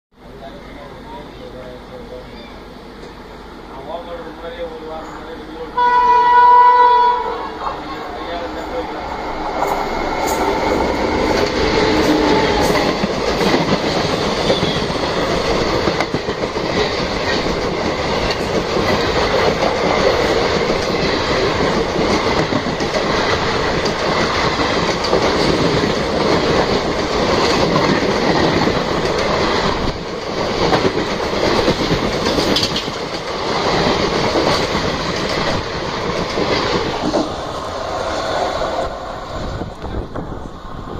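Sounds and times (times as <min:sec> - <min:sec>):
train coaches rushing past: 0:00.2 - 0:40.9
wheels clacking over rail joints: 0:08.6 - 0:37.5.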